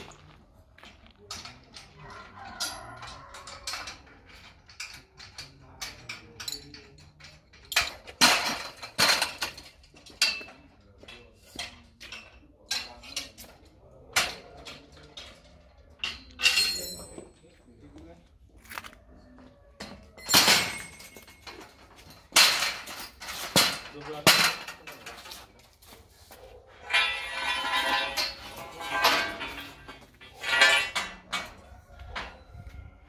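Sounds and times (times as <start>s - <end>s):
sharp metallic knocks and clinks: 2.4s - 10.8s, 16.0s - 17.4s, 19.8s - 25.6s, 26.8s - 32.6s.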